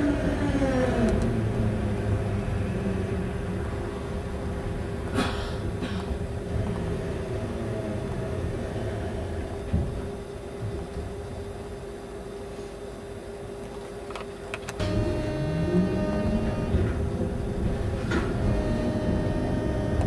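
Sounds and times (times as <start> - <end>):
wheels rumbling on rails: 0.0 - 11.9, 13.6 - 20.0
tram motor whine: 0.0 - 20.0.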